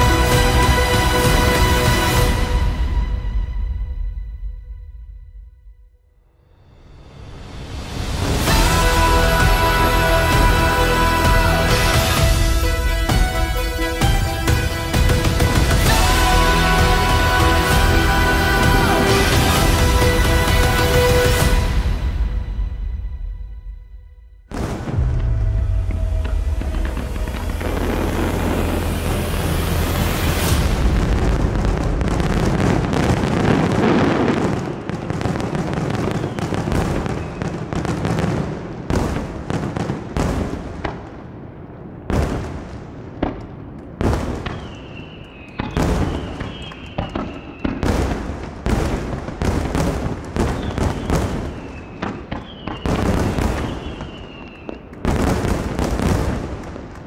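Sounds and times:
fireworks bangs: 7.1 - 23.2, 24.4 - 57.0
firework shell bursts: 44.5 - 48.0.

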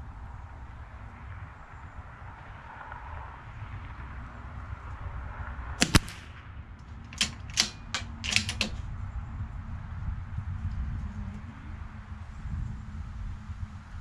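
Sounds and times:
rifle bolt clicking: 5.8 - 6.2, 6.8 - 8.8.

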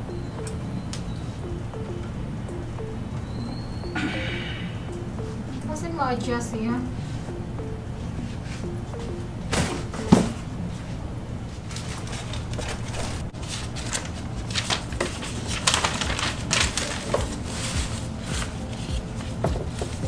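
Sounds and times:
steady low hum: 0.0 - 20.0
rustling: 9.6 - 20.0.

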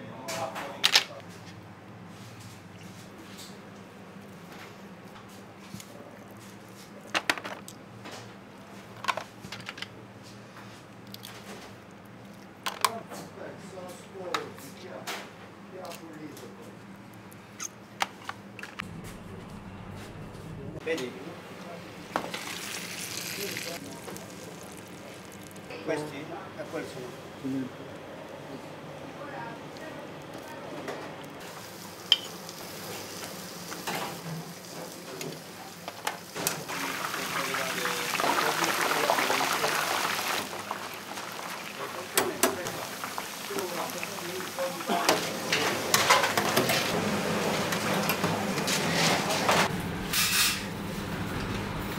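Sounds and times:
steady low hum: 16.8 - 22.1
food sizzling in a pan: 22.2 - 25.7, 31.4 - 46.9.

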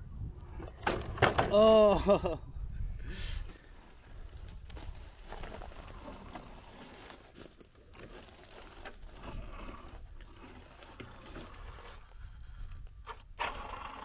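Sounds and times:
tyres crunching on rock and leaves: 3.6 - 12.0
small crackles and clicks: 4.1 - 13.8.

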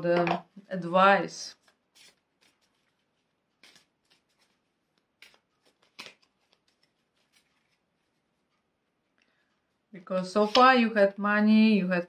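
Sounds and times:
cards rustling when shuffled: 1.6 - 9.7.

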